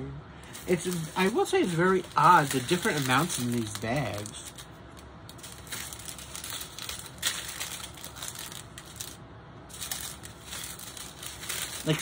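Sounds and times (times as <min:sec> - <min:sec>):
plastic bags crinkling: 0:00.4 - 0:12.0.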